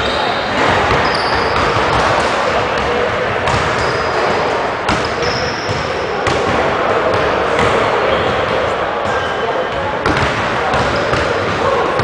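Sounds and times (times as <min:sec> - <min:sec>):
echoing gymnasium background: 0:00.0 - 0:12.0
basketballs bouncing on hardwood: 0:03.5 - 0:04.0, 0:10.0 - 0:12.0.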